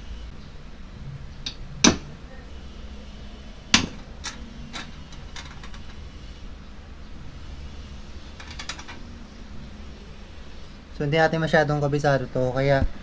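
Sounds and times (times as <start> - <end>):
steady low rumble: 0.0 - 8.3.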